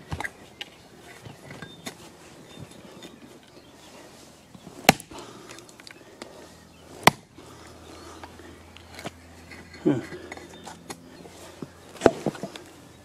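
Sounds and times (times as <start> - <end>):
axe chopping into stump: 4.8 - 5.1, 7.0 - 7.3.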